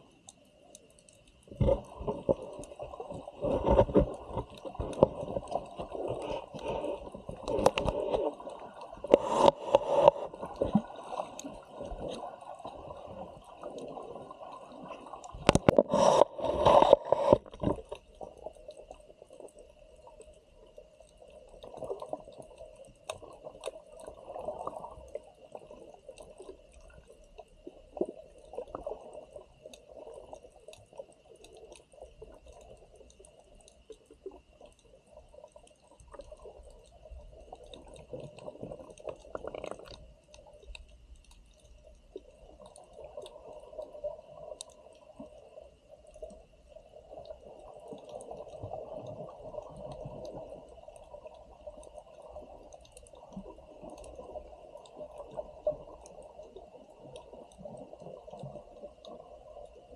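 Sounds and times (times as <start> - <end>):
faint clicks: 0.0 - 12.2, 29.6 - 46.4
water sloshing and bubbling: 0.0 - 59.9.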